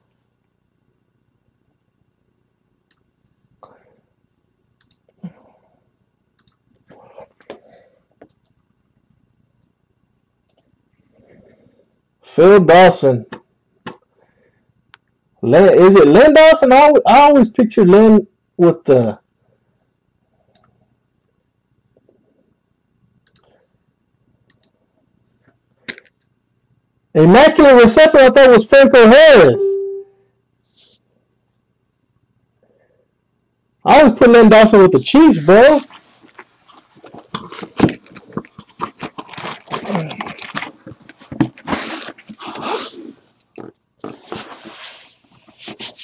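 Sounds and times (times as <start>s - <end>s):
faint clicks: 4.8s - 5.1s, 6.4s - 7.6s, 23.2s - 23.5s
plastic bag crinkling: 35.8s - 42.8s
box sliding across table mat: 44.0s - 46.0s.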